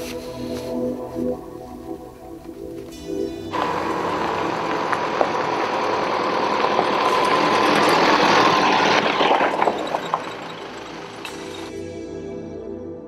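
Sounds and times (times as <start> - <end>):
car driving on gravel: 2.7 - 11.7.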